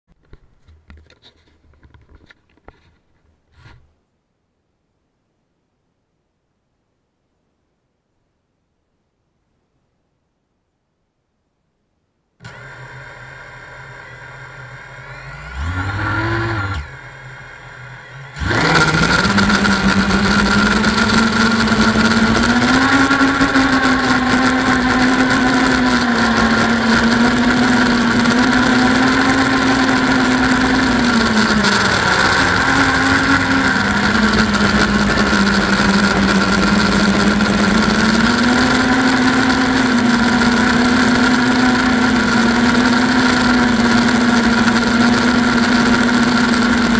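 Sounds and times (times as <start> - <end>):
quadcopter motors whining: 12.4 - 46.9.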